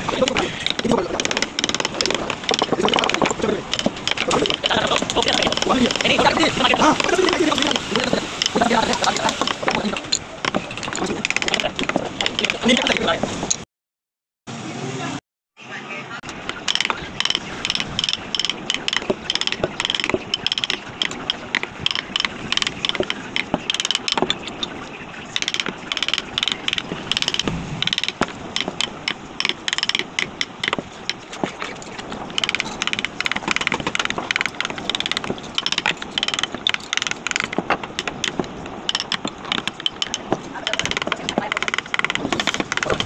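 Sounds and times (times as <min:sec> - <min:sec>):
mallet tapping carving gouge: 0:00.0 - 0:13.1, 0:16.3 - 0:24.8, 0:25.4 - 0:43.0.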